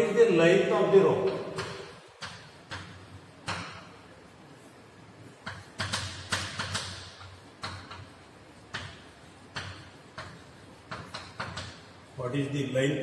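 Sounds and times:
chalk tapping and scratching on blackboard: 0:01.3 - 0:04.0, 0:05.2 - 0:12.3.

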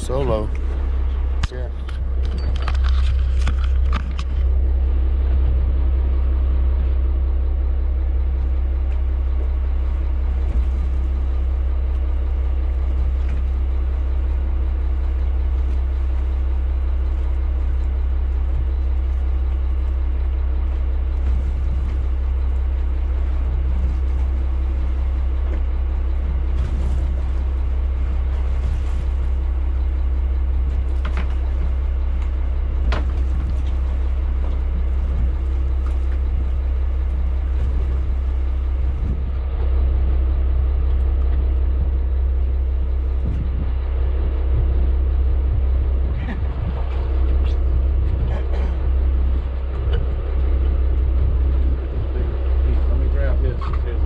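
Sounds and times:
boat engine droning: 0:00.0 - 0:54.0.

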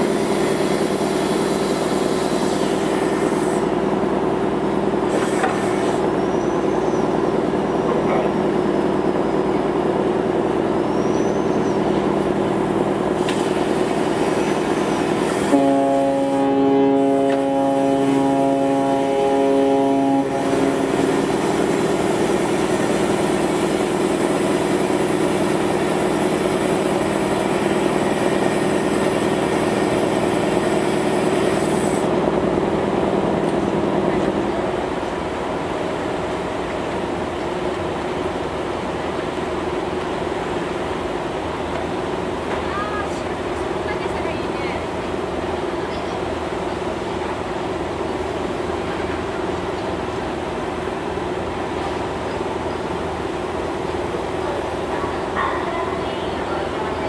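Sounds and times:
ship engines humming: 0:00.0 - 0:57.0
ship horn chord: 0:15.4 - 0:21.3.

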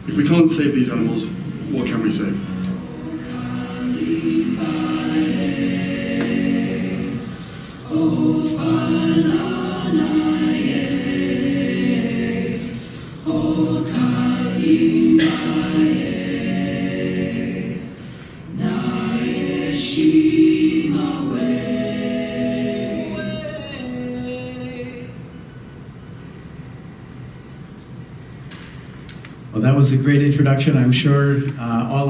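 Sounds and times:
choir singing: 0:00.2 - 0:25.4.

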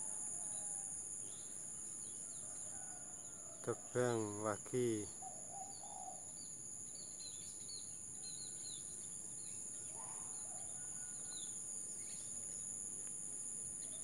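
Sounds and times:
insect trilling: 0:03.6 - 0:12.7
small birds chirping: 0:04.2 - 0:13.2.

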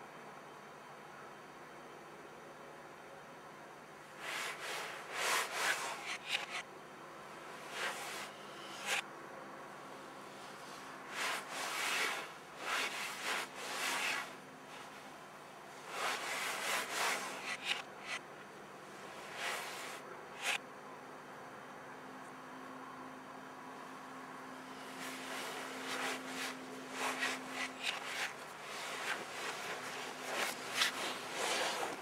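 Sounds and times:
scratchy rubbing on camera: 0:04.2 - 0:06.6, 0:07.7 - 0:09.0, 0:10.5 - 0:14.9, 0:15.9 - 0:18.2, 0:19.2 - 0:20.6, 0:24.8 - 0:32.0.

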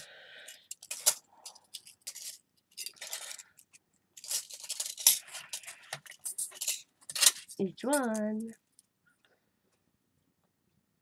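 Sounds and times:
metal pieces clinking and scraping: 0:00.5 - 0:08.5.

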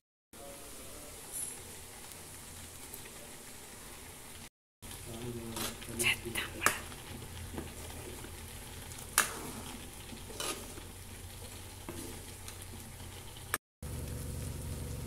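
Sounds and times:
stew bubbling in a pot: 0:00.4 - 0:15.0
ladle stirring and pouring: 0:04.9 - 0:13.6.

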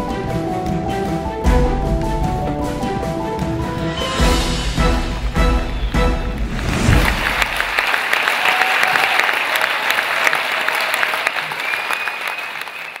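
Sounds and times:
show music: 0:00.0 - 0:08.4
crowd applause: 0:05.1 - 0:13.0.

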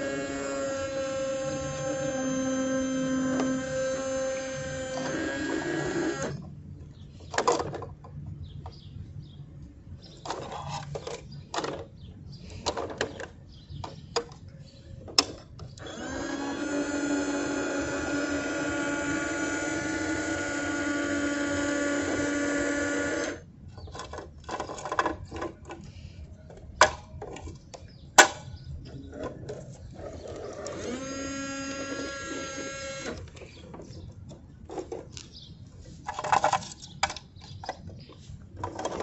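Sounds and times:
small electric motor whining: 0:00.0 - 0:06.4, 0:15.8 - 0:23.5, 0:30.0 - 0:33.4.

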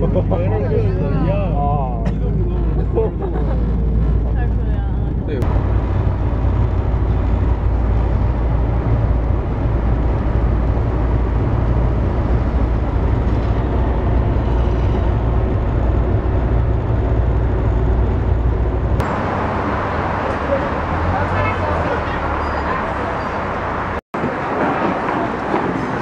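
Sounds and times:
van engine and road rumble: 0:00.0 - 0:26.0.

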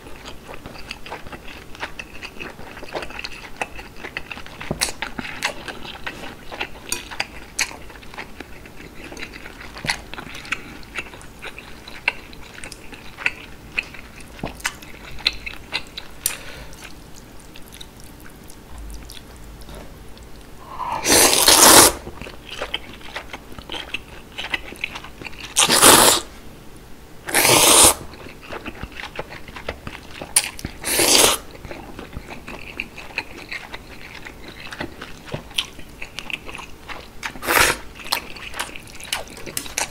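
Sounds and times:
chewing noodles: 0:00.0 - 0:26.2, 0:27.3 - 0:39.9
loud noodle slurps: 0:20.8 - 0:22.0, 0:25.6 - 0:26.3, 0:27.3 - 0:28.0, 0:30.8 - 0:31.4, 0:37.4 - 0:37.8.

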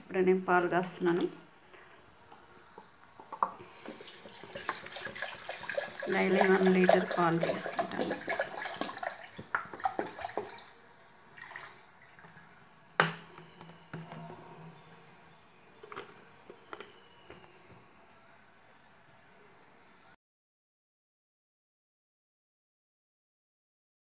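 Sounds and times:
milk pouring into a steel pot: 0:03.2 - 0:12.4.

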